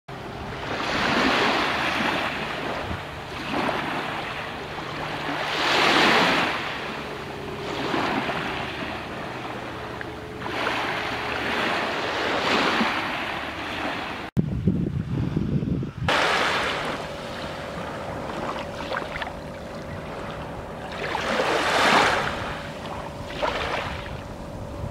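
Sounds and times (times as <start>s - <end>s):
waves washing on pebble beach: 3.4s - 6.8s, 16.1s - 17.2s.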